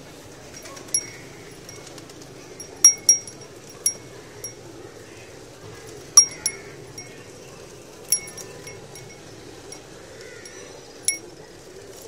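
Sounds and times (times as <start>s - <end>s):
neck bell clanking: 0.5s - 4.6s, 6.2s - 7.2s, 8.1s - 9.8s, 10.5s - 11.3s.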